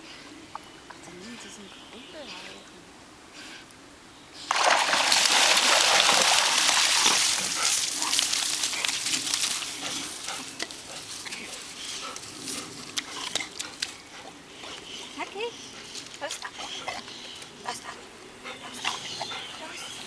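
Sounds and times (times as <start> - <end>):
dog shaking off water: 4.5 - 9.7
small splashes and clicks: 4.5 - 9.8.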